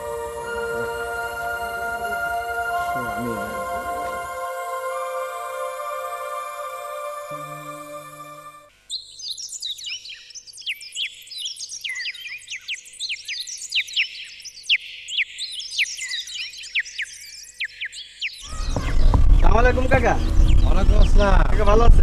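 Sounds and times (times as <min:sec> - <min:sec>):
background music with held notes: 0:00.0 - 0:08.7
small birds chirping: 0:08.8 - 0:22.0.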